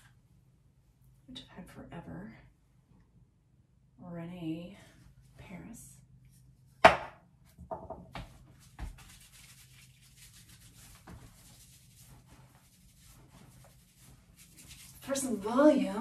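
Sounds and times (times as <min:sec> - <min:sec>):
soft knocks: 0:06.8 - 0:08.9
hands rubbing product through hair: 0:08.2 - 0:16.0.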